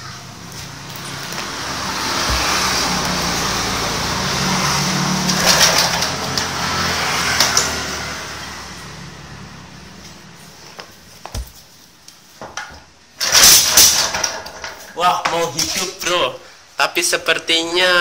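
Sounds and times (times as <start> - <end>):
engine rope-started and running: 0.9 - 8.7, 13.2 - 14.6.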